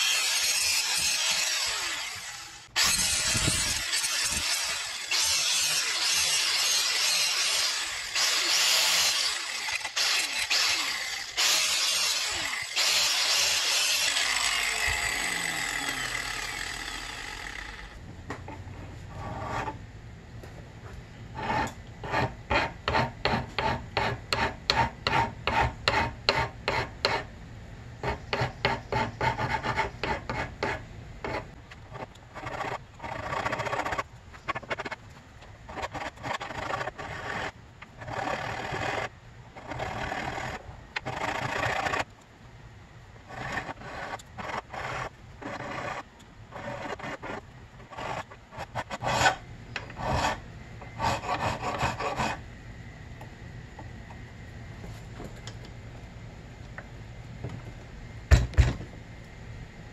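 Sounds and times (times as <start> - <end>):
hand file rasping metal: 0.0 - 14.4, 21.4 - 27.3, 50.0 - 52.4
angle grinder grinding metal: 0.0 - 18.0.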